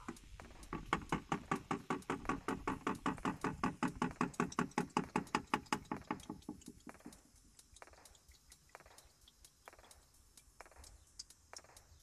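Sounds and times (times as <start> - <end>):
oil glugging from drain hole: 0.0 - 8.8.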